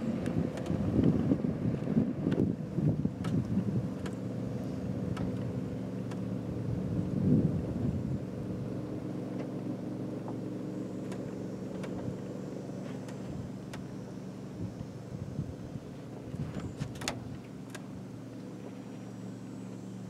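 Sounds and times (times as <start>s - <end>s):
wind buffeting microphone: 0.0s - 8.9s, 14.5s - 17.4s
boat motor running: 0.0s - 20.0s.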